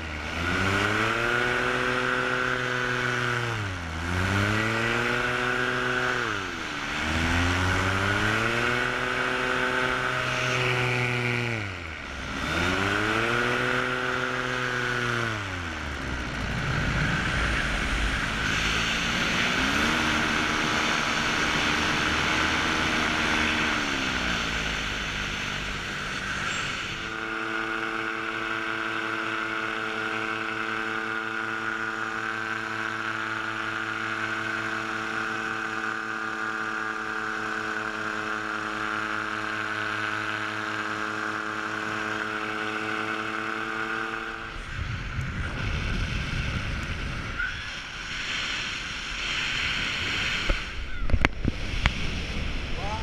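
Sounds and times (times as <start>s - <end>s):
paramotor engine and propeller: 0.0s - 53.0s
wind on microphone: 13.8s - 26.2s, 44.4s - 53.0s.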